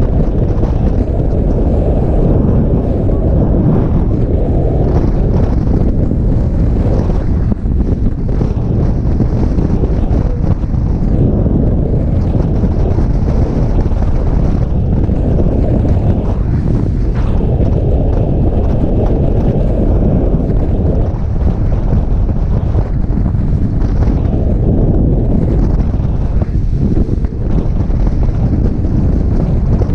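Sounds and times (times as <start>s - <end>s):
wind buffeting microphone: 0.0s - 29.9s.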